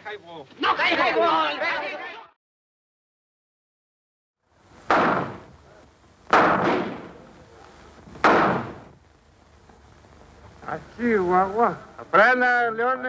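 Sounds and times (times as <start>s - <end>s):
gunshots with echo: 4.9s - 5.5s, 6.3s - 7.2s, 8.2s - 8.9s.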